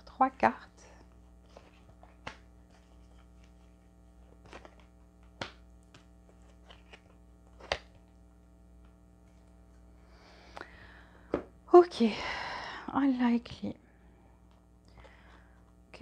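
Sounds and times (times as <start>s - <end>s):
low steady hum: 0.0s - 16.0s
cards tapping and clicking on table: 4.5s - 6.1s.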